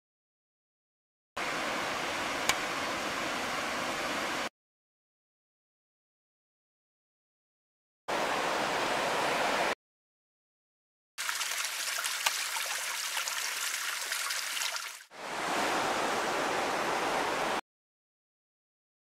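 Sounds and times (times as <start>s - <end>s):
river water rushing: 1.4s - 4.5s, 8.1s - 9.8s, 13.6s - 17.6s
water trickling down rock: 11.2s - 15.1s.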